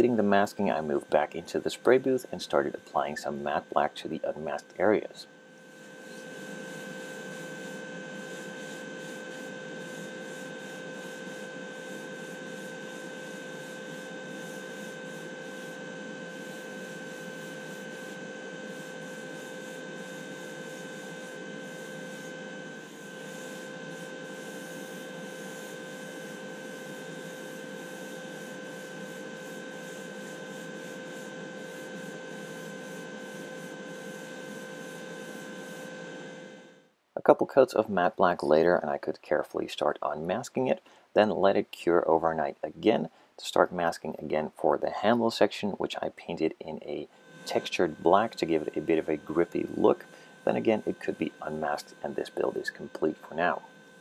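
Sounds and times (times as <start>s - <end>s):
extraction fan whirring: 0.0s - 10.7s, 46.2s - 54.0s.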